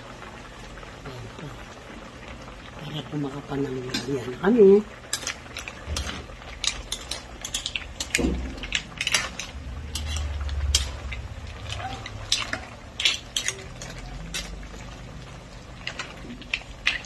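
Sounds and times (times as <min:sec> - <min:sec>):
metal spatula scraping pan: 0:05.1 - 0:14.6.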